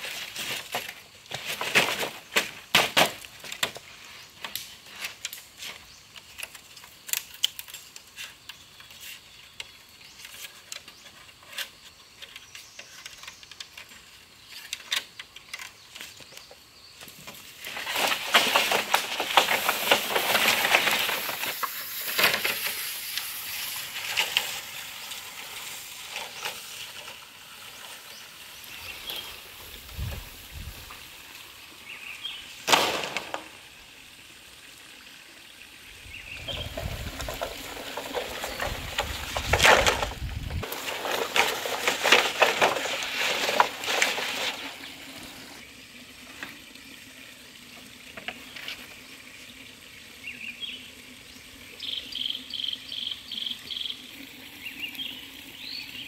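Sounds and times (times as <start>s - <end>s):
strip rustling on bamboo poles: 0.0s - 33.8s, 36.3s - 45.6s.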